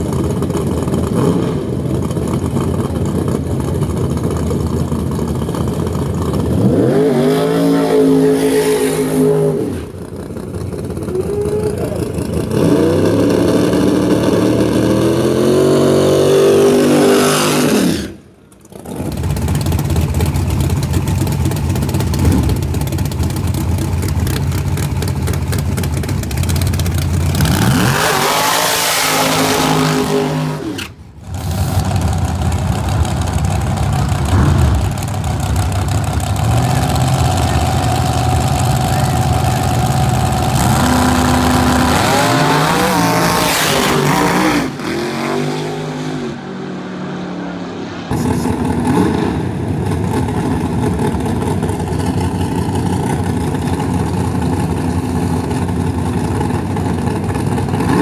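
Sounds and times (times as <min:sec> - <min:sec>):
truck engines idling rough: 0:00.0 - 0:07.4, 0:08.8 - 0:15.3, 0:18.0 - 0:28.3, 0:30.8 - 0:43.1, 0:48.0 - 0:58.0
truck engines revving hard: 0:00.0 - 0:20.2, 0:22.0 - 0:23.1, 0:23.9 - 0:58.0.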